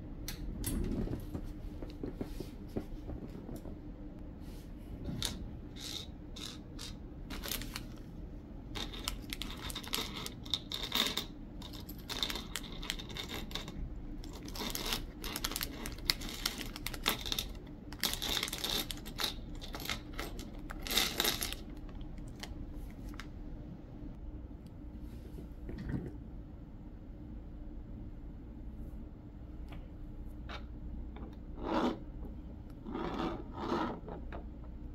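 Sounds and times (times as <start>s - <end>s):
plastic bag crinkling: 14.2s - 23.2s.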